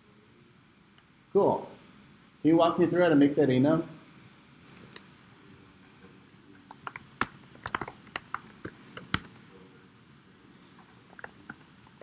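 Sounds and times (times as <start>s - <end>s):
typing on computer keyboard: 6.7s - 9.4s, 11.1s - 12.0s.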